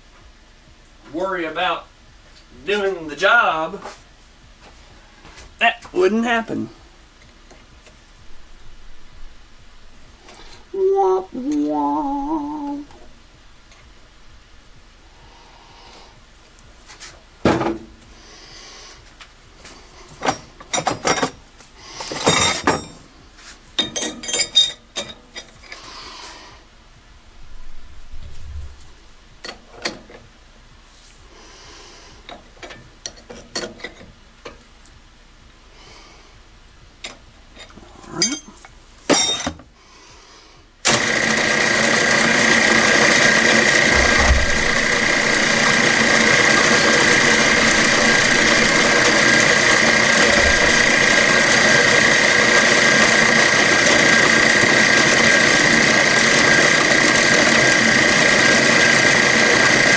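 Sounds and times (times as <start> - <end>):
milling spindle whining: 40.9 - 59.9
wrench clanking on drill chuck: 43.5 - 54.6.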